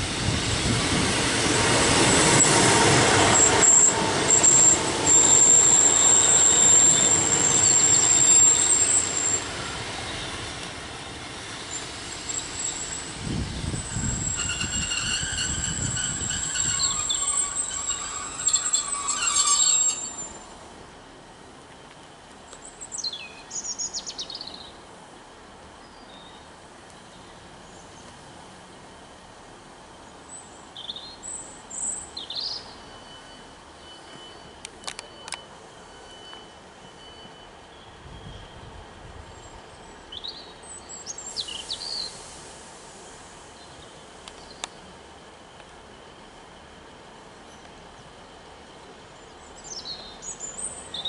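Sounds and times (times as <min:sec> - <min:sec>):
train low rumble: 0:00.0 - 0:51.0
train brakes squealing: 0:00.2 - 0:20.7, 0:30.4 - 0:44.7, 0:48.8 - 0:51.0.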